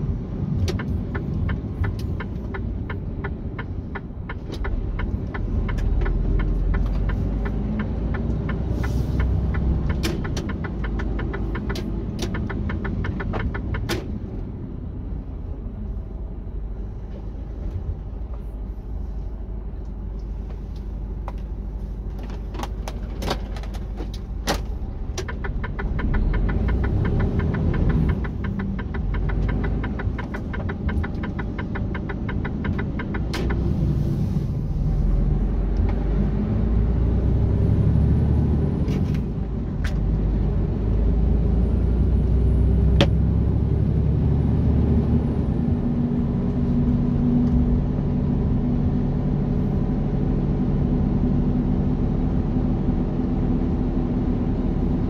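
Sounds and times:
diesel truck engine rumble: 0.0s - 55.0s
sharp clicks: 0.6s - 14.1s, 24.5s - 33.6s.

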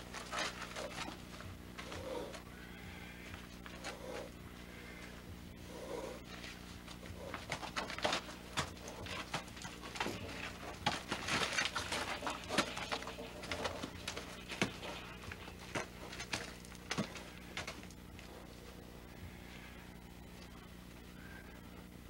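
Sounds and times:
horse knocking and scuffling: 6.9s - 18.0s.

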